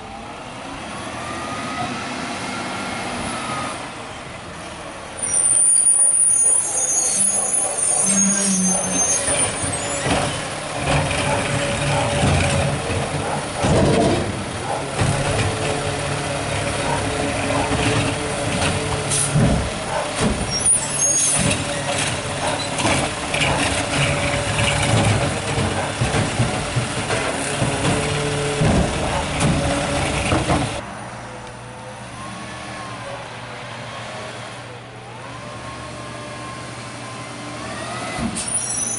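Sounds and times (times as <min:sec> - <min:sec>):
garbage truck engine running: 0:06.8 - 0:30.8.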